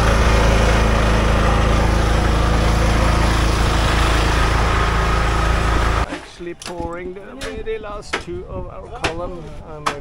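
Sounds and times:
small engine running: 0.0 - 6.0.

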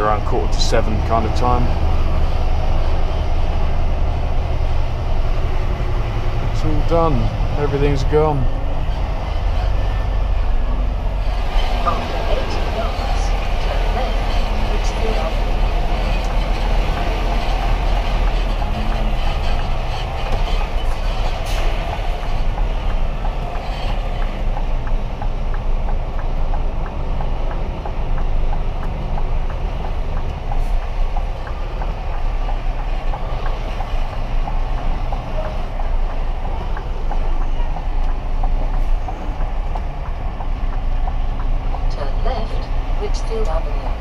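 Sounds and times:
engine and road rumble: 0.0 - 44.0
faint regular ticking: 11.2 - 44.0.

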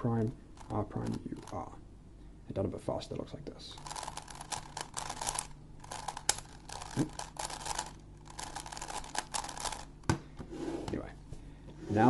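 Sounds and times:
plastic puzzle clicking as turned: 3.8 - 9.9.

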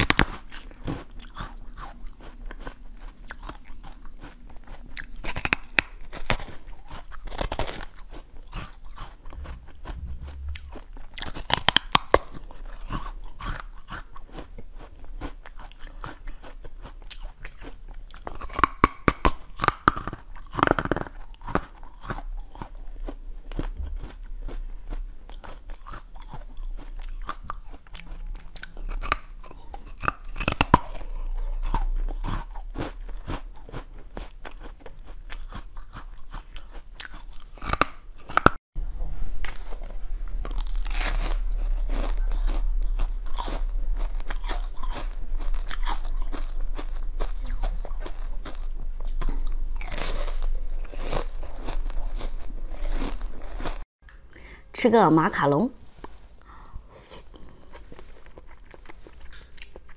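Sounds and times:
quiet chewing: 0.0 - 54.5, 56.0 - 59.9
crisp bites into watermelon: 39.5 - 49.2.

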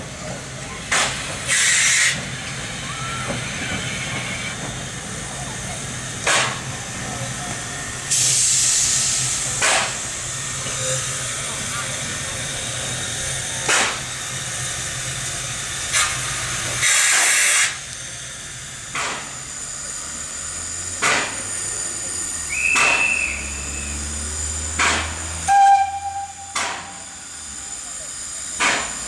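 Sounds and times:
steam hissing: 0.0 - 29.0
bursts of steam: 0.8 - 4.7, 7.6 - 17.9, 21.0 - 29.0.

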